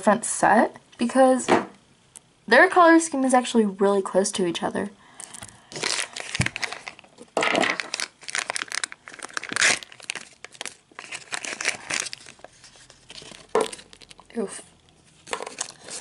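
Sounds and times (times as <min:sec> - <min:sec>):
plastic packet crinkling: 0:05.2 - 0:16.0.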